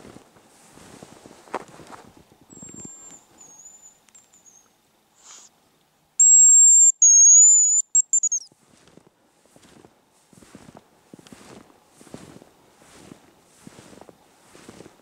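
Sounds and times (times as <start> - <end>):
faint high whistle: 6.2 - 8.5
high whistle bird call lure: 6.2 - 8.5.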